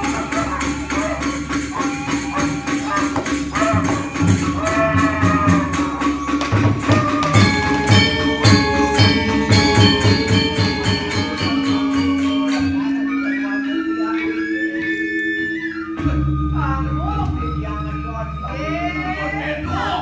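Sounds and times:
hand drum strokes: 0.0s - 13.5s
cymbal-like clashes: 0.0s - 14.1s
metallophone tones: 0.0s - 19.2s.

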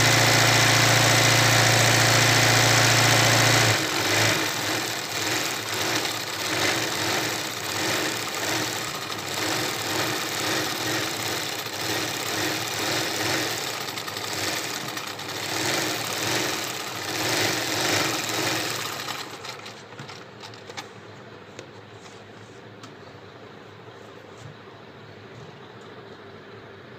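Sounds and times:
sewing machine running: 0.0s - 20.6s.

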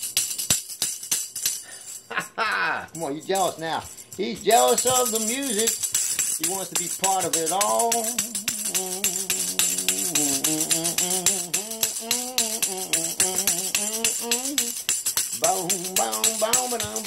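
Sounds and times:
tambourine jingles rattling: 0.0s - 17.0s
man singing without words: 4.2s - 17.0s.

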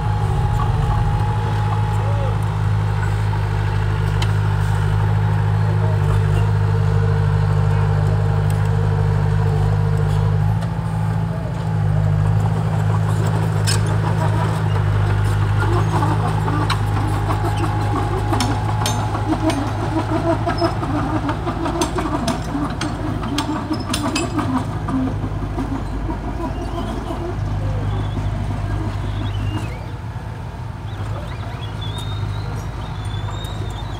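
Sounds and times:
steel tracks clanking: 0.0s - 4.5s, 13.5s - 29.8s
bulldozer diesel engine under load: 0.0s - 33.9s.

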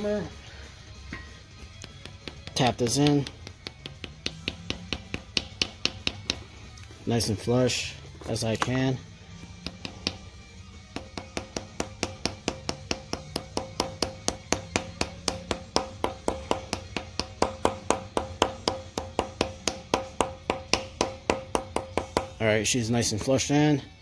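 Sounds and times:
hammer tapping metal plug: 1.8s - 6.4s, 10.9s - 22.4s.

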